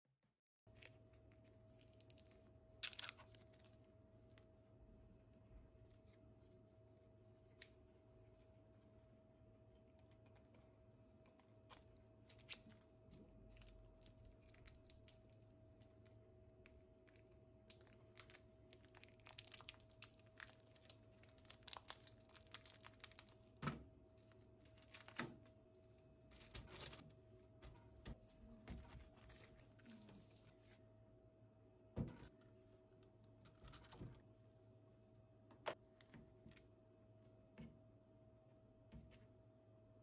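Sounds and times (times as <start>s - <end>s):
crinkling and tearing: 0.7s - 4.4s, 10.2s - 23.6s, 26.3s - 27.1s.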